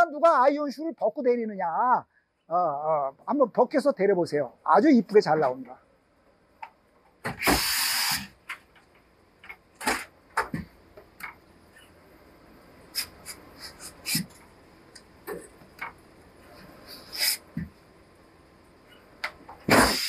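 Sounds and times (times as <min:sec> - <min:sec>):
steam iron hissing: 0:07.3 - 0:08.4, 0:16.9 - 0:17.5, 0:19.7 - 0:20.0.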